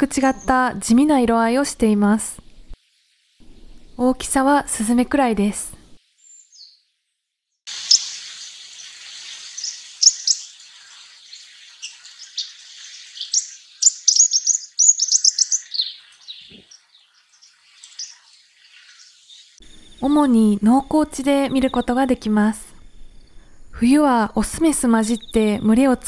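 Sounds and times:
sparrow chirping: 6.2s - 6.8s, 7.7s - 22.2s, 24.9s - 25.7s.

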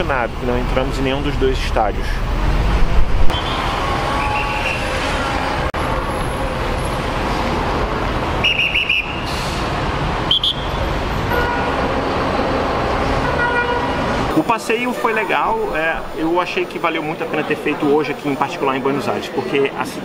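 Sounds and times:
traffic rumble: 0.0s - 18.4s
high-pitched car horn toots: 3.3s - 5.7s, 13.2s - 14.0s.

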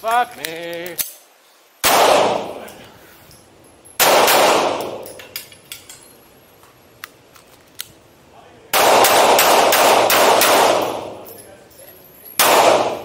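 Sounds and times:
pistol shots echoing indoors: 1.8s - 2.6s, 4.0s - 5.2s, 8.7s - 11.4s, 12.4s - 13.0s.

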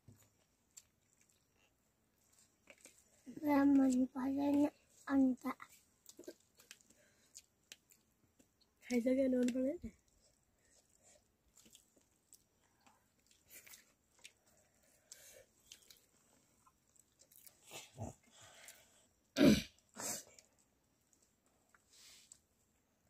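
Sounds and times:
soft chewing: 0.0s - 23.0s.

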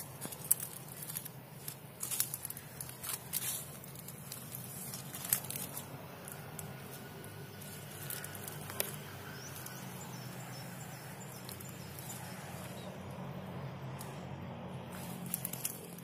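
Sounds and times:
steady low hum: 0.0s - 16.0s
faint bird chirps: 7.4s - 13.1s.

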